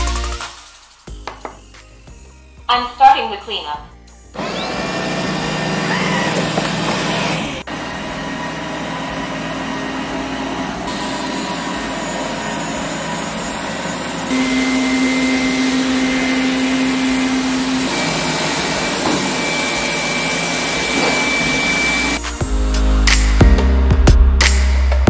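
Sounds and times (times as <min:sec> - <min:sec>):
robot vacuum suction fan humming: 0:04.4 - 0:22.2.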